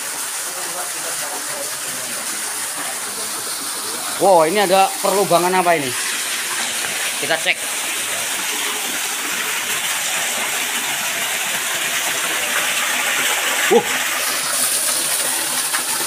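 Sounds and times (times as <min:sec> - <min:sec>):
small waterfall splashing: 0:00.0 - 0:16.0
short vocal sound: 0:13.7 - 0:14.0.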